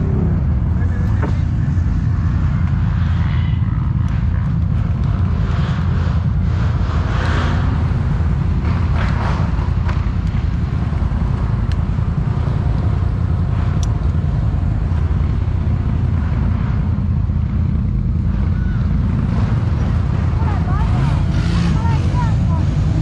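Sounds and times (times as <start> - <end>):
engine running at low revs: 0.0 - 23.0
light sharp ticks: 4.0 - 5.3, 11.3 - 11.9, 12.6 - 15.1.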